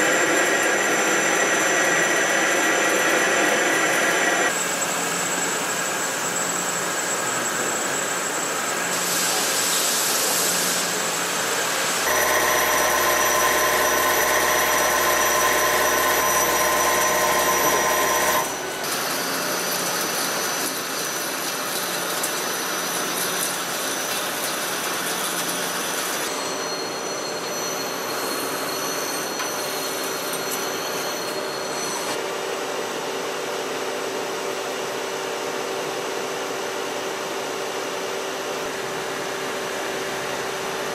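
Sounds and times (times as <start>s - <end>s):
machine cutting metal: 0.0s - 32.2s.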